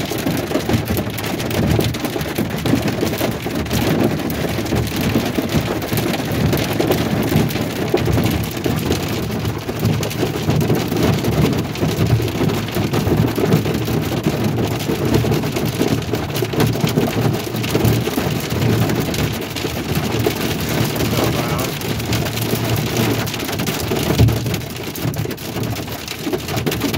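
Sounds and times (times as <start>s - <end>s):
heavy rain drumming on vehicle roof: 0.0s - 26.9s.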